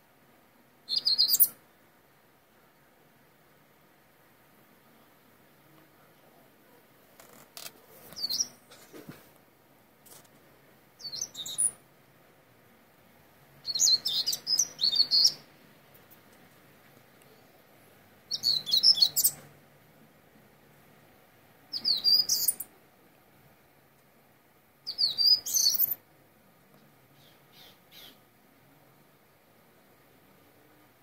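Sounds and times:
starling singing: 0.9s - 1.6s, 11.0s - 11.8s, 13.6s - 15.5s, 18.3s - 19.4s, 21.7s - 22.6s, 24.9s - 26.0s.

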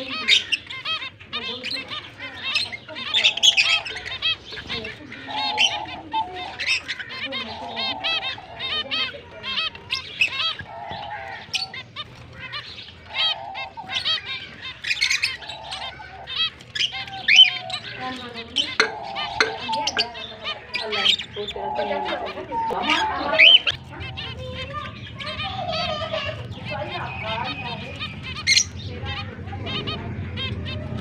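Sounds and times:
finches beeping calls: 0.0s - 31.0s
longer lower finch calls: 0.0s - 31.0s.

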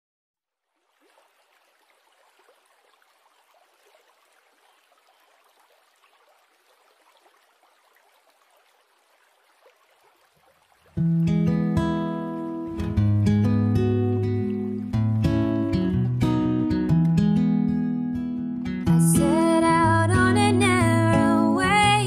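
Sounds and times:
faint stream flowing over rocks: 0.5s - 15.9s.

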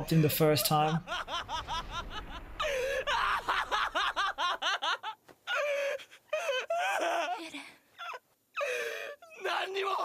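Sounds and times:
young man laughing hysterically: 0.0s - 7.4s.

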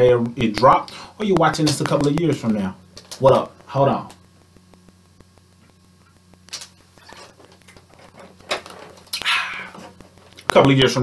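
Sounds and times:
faint recording clicks: 0.5s - 11.0s.

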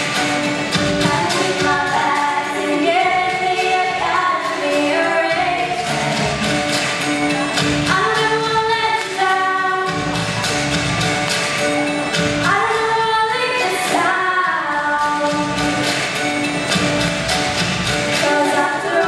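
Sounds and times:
backing music with steady beat: 0.0s - 19.0s
women singing a duet: 1.0s - 6.6s, 7.8s - 10.2s, 12.4s - 15.9s, 18.1s - 19.0s.

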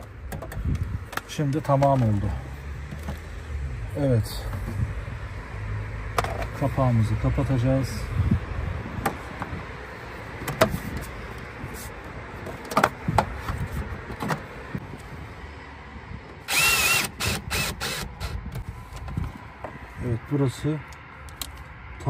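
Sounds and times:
electric screwdriver whirring: 16.5s - 18.4s.

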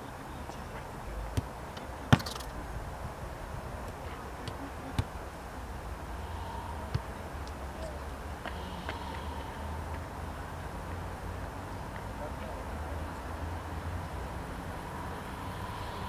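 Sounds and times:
open-air background hum: 0.0s - 16.0s
football being kicked: 1.4s - 2.4s.

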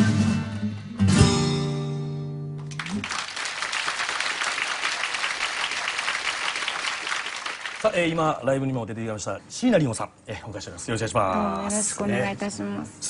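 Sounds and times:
audience applause: 2.6s - 8.2s.

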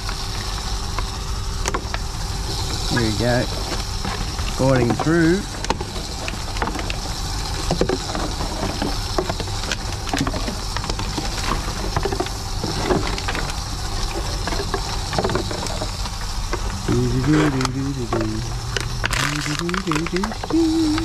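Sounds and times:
vending machine humming: 0.0s - 8.1s, 16.3s - 21.0s.

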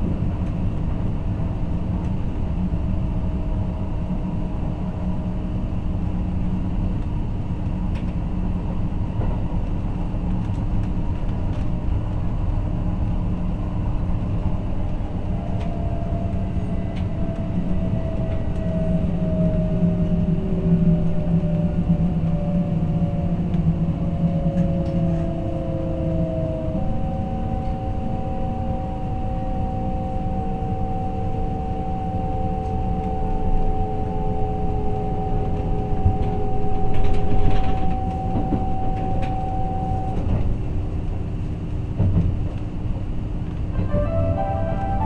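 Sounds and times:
train wheels rumbling on rail: 0.0s - 45.0s
steady higher tone: 26.1s - 40.4s, 43.7s - 45.0s.

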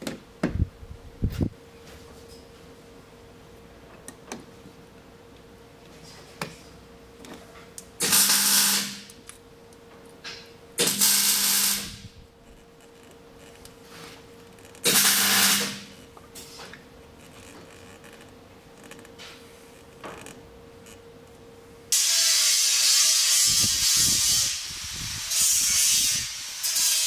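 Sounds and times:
handheld power tool whirring: 21.9s - 27.0s.

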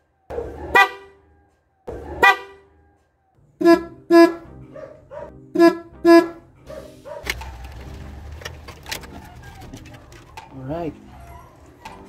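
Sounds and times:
car horn tooting: 0.6s - 1.3s, 2.1s - 2.8s, 3.6s - 4.6s, 5.5s - 6.5s.

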